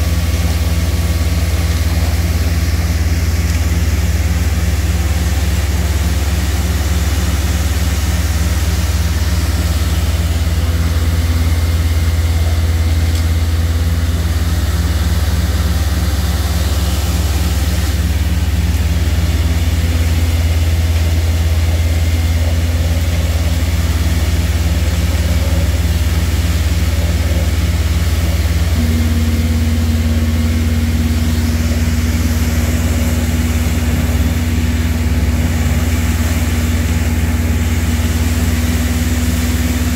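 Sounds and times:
diesel vacuum truck running: 0:00.0 - 0:39.9
higher steady hum: 0:23.3 - 0:39.9.

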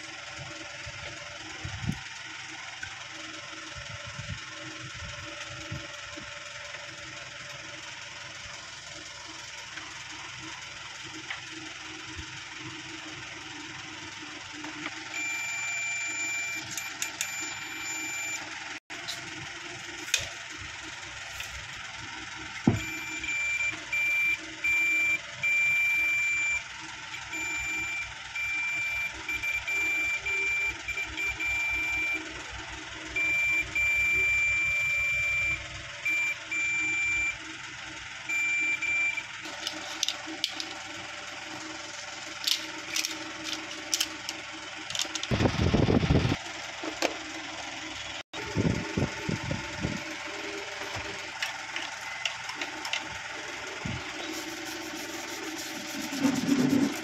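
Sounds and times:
multimeter continuity beeps: 0:22.7 - 0:26.6, 0:27.4 - 0:32.2, 0:33.2 - 0:37.4.

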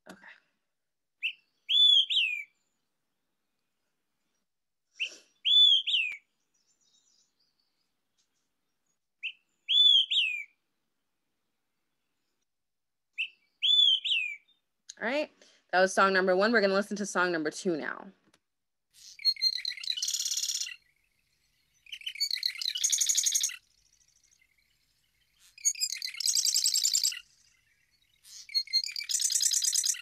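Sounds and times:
bird whistling song: 0:01.2 - 0:02.6, 0:05.0 - 0:07.5, 0:09.2 - 0:10.6, 0:13.2 - 0:14.6, 0:19.0 - 0:30.0.

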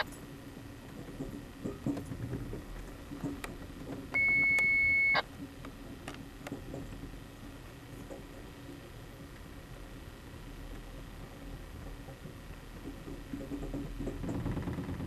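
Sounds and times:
high beep: 0:04.2 - 0:05.2.

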